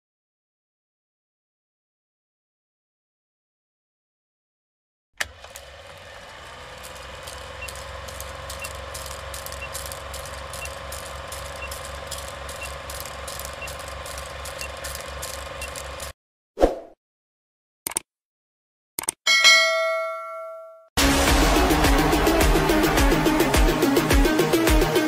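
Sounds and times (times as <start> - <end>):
film projector clattering: 5.2 - 16.2.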